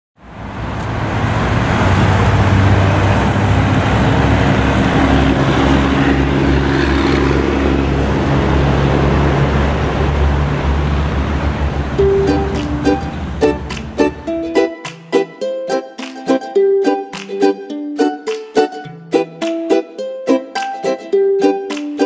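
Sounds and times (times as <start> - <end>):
low hum of big engines: 0.2 - 14.5
cars and trucks in slow traffic: 0.2 - 14.6.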